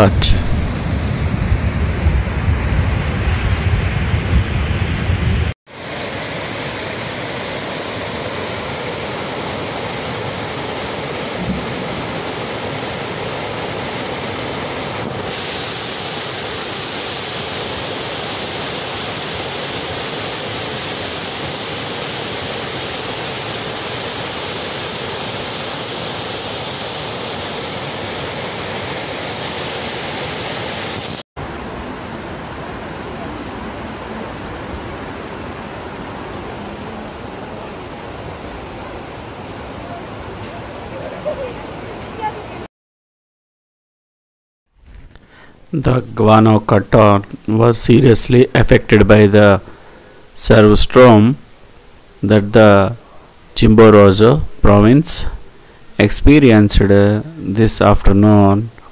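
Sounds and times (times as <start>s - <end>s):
wind rumble on microphone: 0.0s - 5.5s
floodwater rushing: 5.7s - 42.7s.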